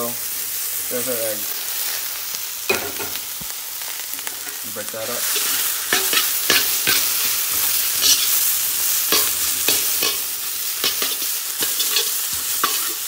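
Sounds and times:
food sizzling in a wok: 0:00.0 - 0:13.0
spatula scraping a pan: 0:05.2 - 0:13.0.

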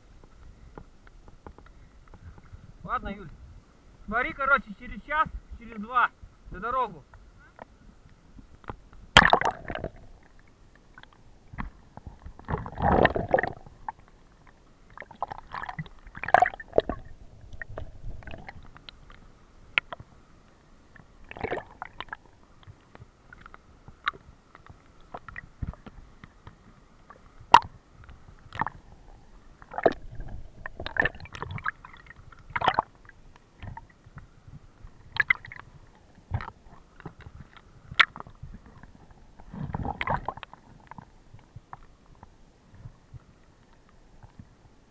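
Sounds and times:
muffled underwater stream gurgling: 0:07.3 - 0:44.9.

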